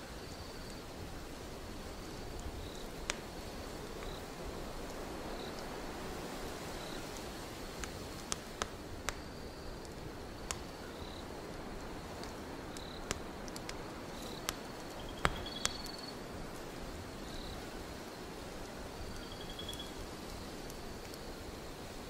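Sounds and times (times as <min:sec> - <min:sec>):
crickets chirping: 0:00.0 - 0:22.0
steady hiss: 0:00.0 - 0:22.0
wood fire crackling: 0:00.0 - 0:22.0
sharp pops from fire: 0:01.4 - 0:17.6.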